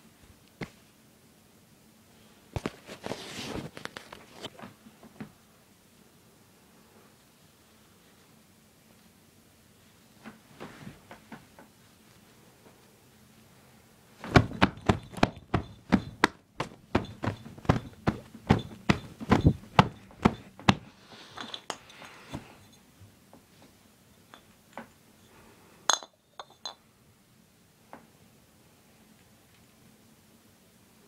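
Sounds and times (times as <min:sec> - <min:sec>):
glass bottles clinking: 0:21.4 - 0:22.8, 0:25.9 - 0:26.8.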